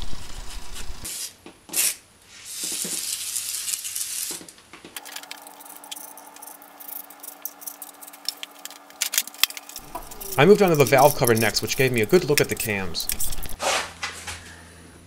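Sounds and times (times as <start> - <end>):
faint steady hum: 5.0 - 13.6.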